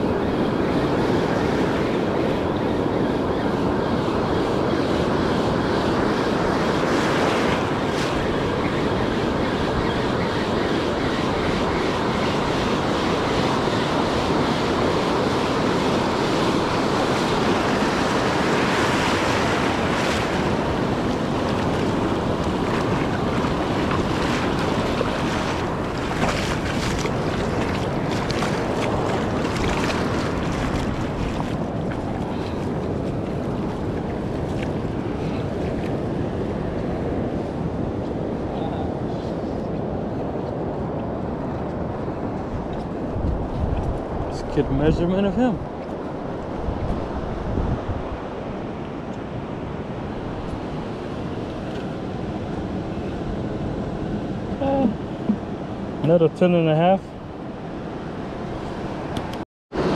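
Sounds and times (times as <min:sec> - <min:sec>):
wind on microphone: 0:00.0 - 0:56.0
surf breaking on sand: 0:12.0 - 0:38.4.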